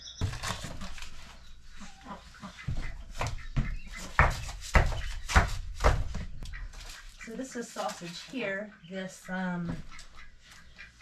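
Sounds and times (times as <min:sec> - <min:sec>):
animal calling: 0:00.0 - 0:05.4
frozen packages knocking and thudding: 0:00.2 - 0:01.5, 0:03.2 - 0:07.1.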